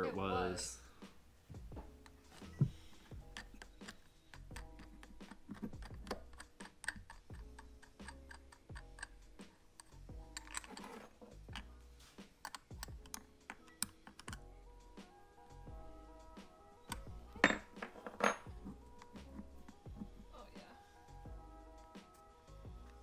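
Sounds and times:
background music: 0.0s - 23.0s
small metal clicks and taps: 3.2s - 10.9s, 11.5s - 11.7s, 12.4s - 14.4s.

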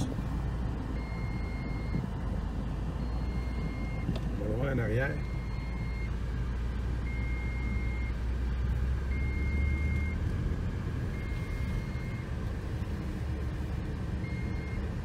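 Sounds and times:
vehicle warning beeps: 0.8s - 2.1s, 2.8s - 6.2s, 7.0s - 8.3s, 9.0s - 10.2s, 11.0s - 15.0s.

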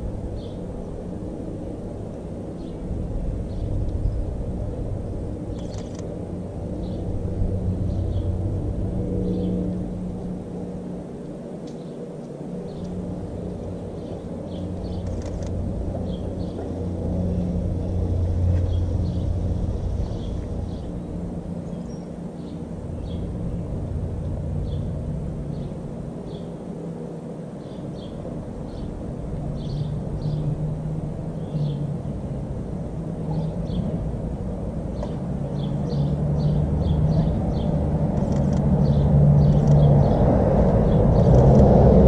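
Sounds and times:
low mechanical rumble: 0.0s - 42.0s
small birds chirping: 5.5s - 6.0s, 27.6s - 30.5s, 34.9s - 40.2s.

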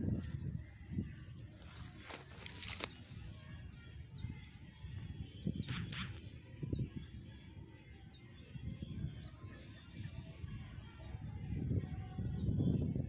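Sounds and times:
small birds chirping: 0.0s - 13.0s
wind rumble on microphone: 0.0s - 13.0s
brief hiss: 5.6s - 6.2s.

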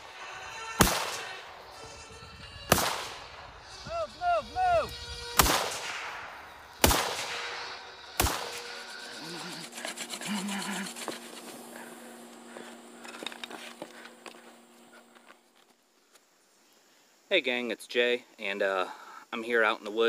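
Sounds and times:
rifle shots with echo: 0.8s - 1.6s, 2.7s - 3.4s, 5.4s - 8.7s.

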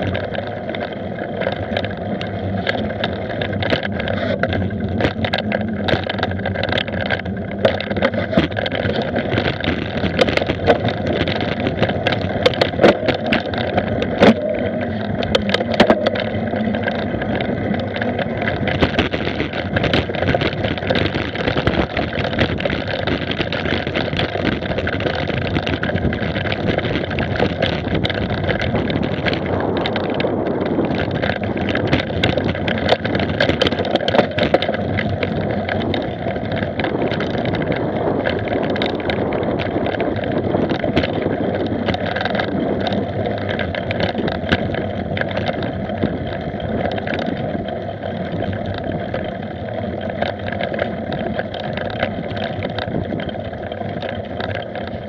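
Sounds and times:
bike rattling and knocking: 0.0s - 55.0s
wind and tyre noise: 0.0s - 55.0s.

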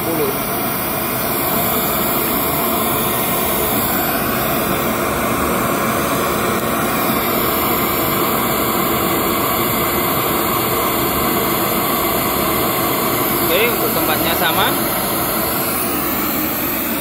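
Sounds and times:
pink noise hiss from loudspeaker: 0.0s - 0.4s.

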